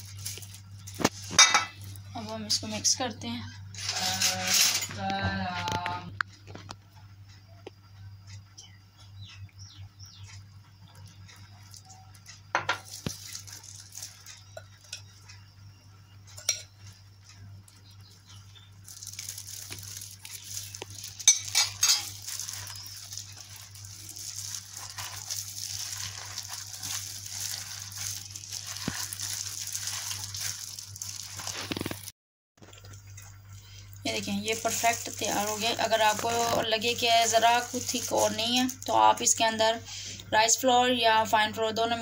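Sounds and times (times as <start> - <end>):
gloved hand squishing dough: 0.0 - 1.4, 18.5 - 21.3, 22.1 - 32.1, 34.2 - 39.0
spoon clinking against glass bowl: 1.4 - 1.7, 16.4 - 16.8, 21.2 - 23.0.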